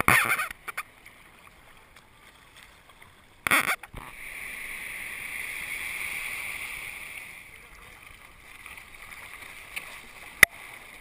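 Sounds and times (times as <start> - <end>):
water lapping faintly: 0.0 - 11.0
water splashing: 0.0 - 11.0
surf rushing hiss: 4.0 - 7.8.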